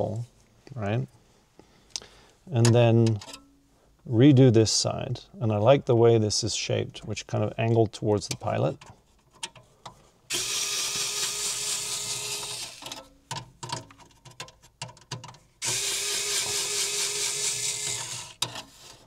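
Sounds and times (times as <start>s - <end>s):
cordless power screwdriver running: 10.3s - 13.0s, 15.6s - 18.4s.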